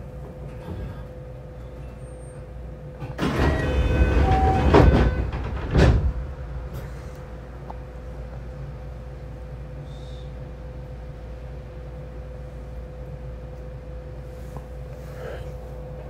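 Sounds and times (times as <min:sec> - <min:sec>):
train doors rushing and thudding: 0:00.0 - 0:07.4
train hum: 0:00.0 - 0:16.0.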